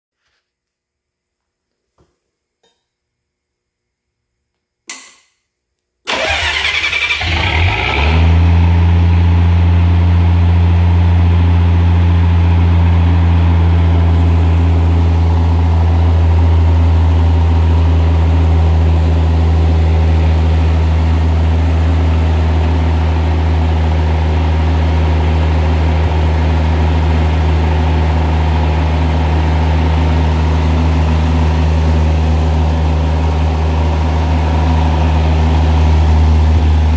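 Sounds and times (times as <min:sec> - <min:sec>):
starter motor cranking: 0:06.1 - 0:08.0
engine idling loudly: 0:06.1 - 0:36.9.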